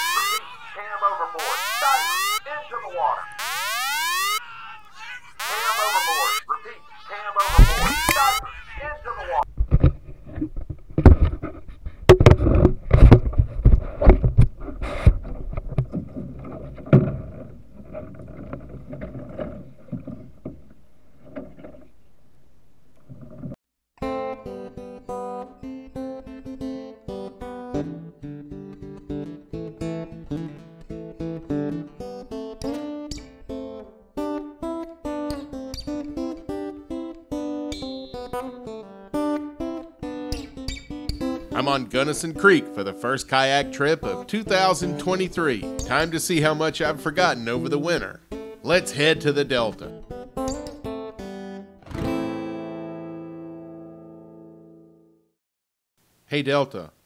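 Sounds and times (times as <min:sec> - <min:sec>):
acoustic guitar plucking: 0:07.3 - 0:21.6, 0:24.0 - 0:55.1
knocks on microphone: 0:09.6 - 0:15.2.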